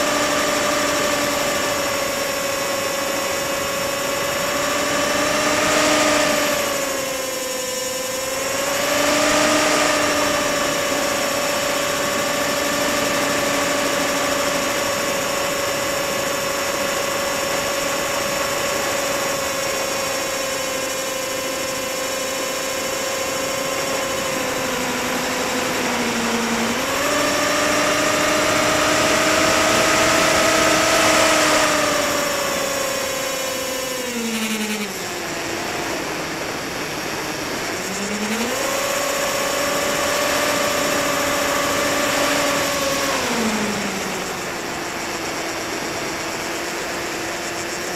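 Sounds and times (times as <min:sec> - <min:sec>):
electric motor and propeller whining: 0:00.0 - 0:47.9.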